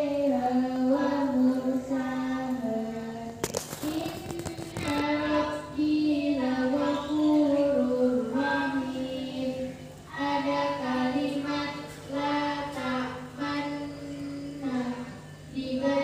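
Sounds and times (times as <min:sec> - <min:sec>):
high voice singing slow melody: 0:00.0 - 0:16.0
crackling noise burst: 0:02.5 - 0:07.3.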